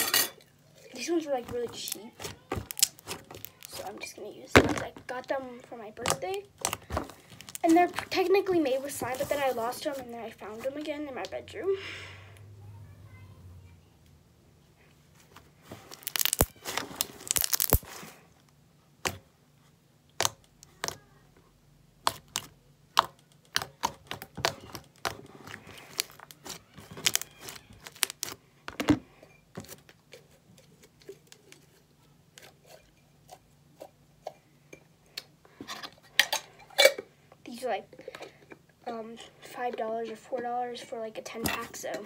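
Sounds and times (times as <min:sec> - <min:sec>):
slime squelching and popping: 0:01.4 - 0:04.0, 0:15.8 - 0:18.0, 0:20.1 - 0:21.0, 0:22.0 - 0:28.4.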